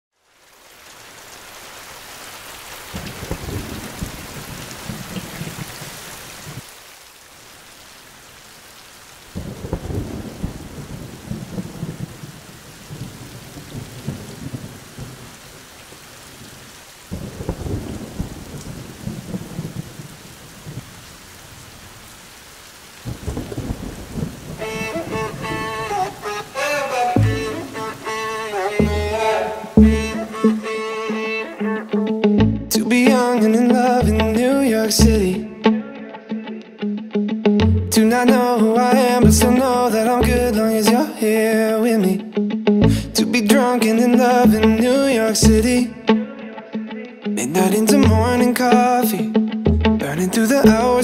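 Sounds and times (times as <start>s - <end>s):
steady rain: 0.1s - 35.9s, 37.7s - 42.2s, 42.8s - 46.2s, 47.5s - 51.0s
rolling thunder: 3.0s - 5.7s, 9.4s - 15.4s, 17.1s - 21.0s, 23.1s - 26.0s.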